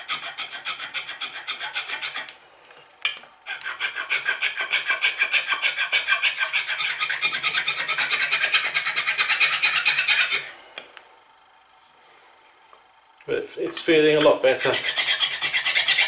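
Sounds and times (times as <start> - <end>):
file rasping on wood: 0.0 - 2.3, 3.4 - 10.5, 14.5 - 16.0.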